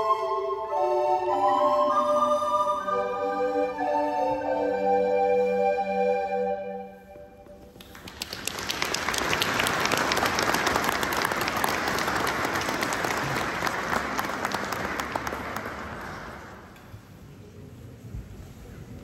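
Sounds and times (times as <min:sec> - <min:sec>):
flute ensemble chord: 0:00.0 - 0:07.5
audience applauding: 0:07.8 - 0:16.7.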